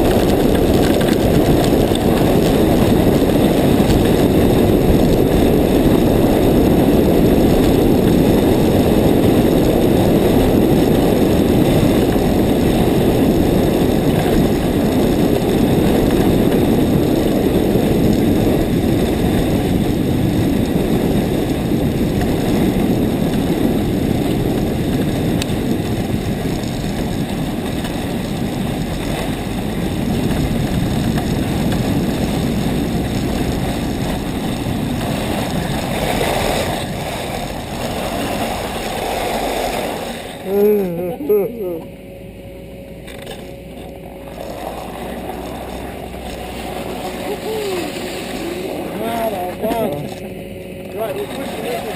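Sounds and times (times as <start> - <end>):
wind buffeting microphone: 0.0 - 51.9
skis hissing over snow: 35.0 - 40.4, 44.4 - 49.4.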